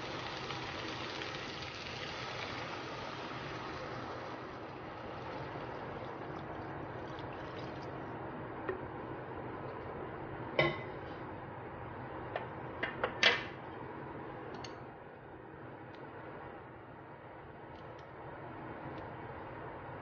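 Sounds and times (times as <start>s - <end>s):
water pouring into a pan: 0.0s - 8.1s.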